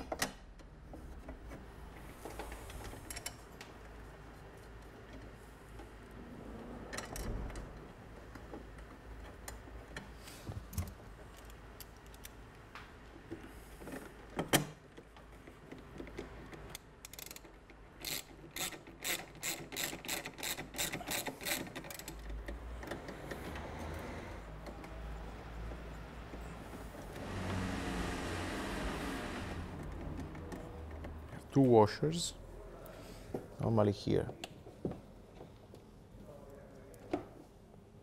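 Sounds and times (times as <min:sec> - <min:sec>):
ratchet wrench clicking: 0:17.0 - 0:22.2.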